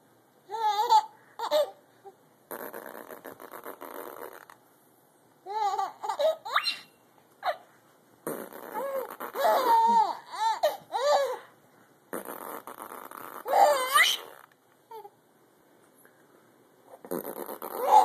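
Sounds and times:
baby giggling: 5.5s - 7.6s, 8.5s - 11.5s, 13.3s - 15.1s, 17.4s - 18.0s.

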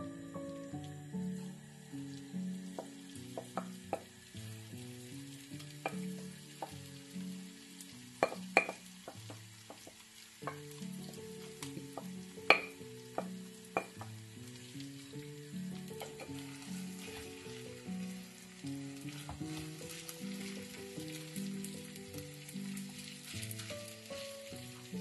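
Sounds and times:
food sizzling in frying pan: 0.0s - 25.0s
soft background music: 0.0s - 25.0s
wooden spoon knocking bowl and pan: 2.8s - 4.1s, 8.2s - 11.2s, 11.9s - 14.1s.

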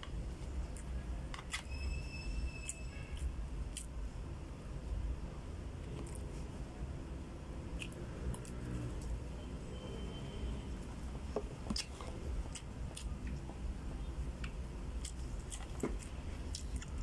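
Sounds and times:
person chewing food: 3.1s - 4.0s, 7.7s - 9.1s, 11.3s - 13.7s, 14.3s - 17.0s.

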